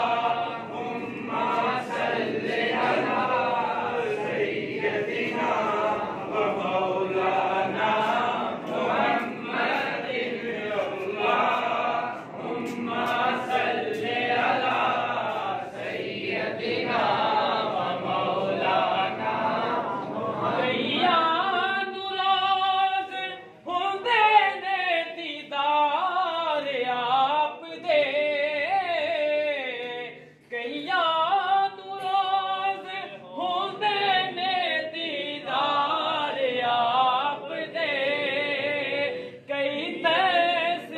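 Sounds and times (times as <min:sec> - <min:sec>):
men chanting together: 0:00.0 - 0:22.1, 0:32.4 - 0:40.9.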